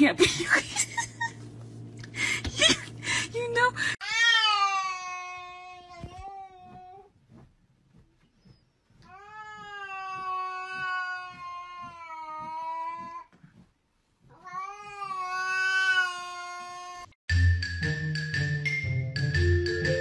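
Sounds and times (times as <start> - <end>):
cat yowling: 9.2 - 13.1, 14.3 - 17.1.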